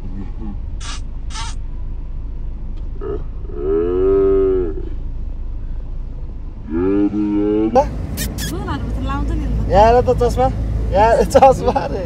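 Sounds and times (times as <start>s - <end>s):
road rumble inside car: 0.0s - 12.0s
drawn-out voiced call: 0.4s - 1.6s, 6.7s - 8.8s
short hisses: 8.0s - 8.6s.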